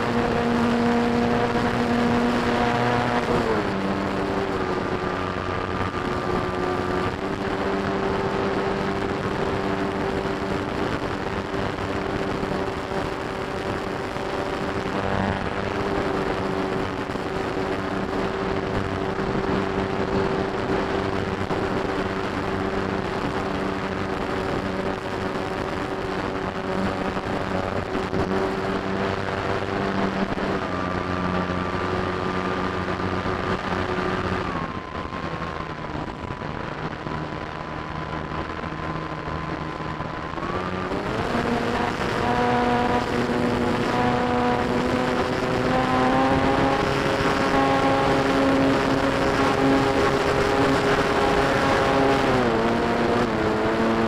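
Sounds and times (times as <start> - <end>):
airflow rushing over wing: 0.0 - 54.0
model airplane motor running: 40.6 - 54.0.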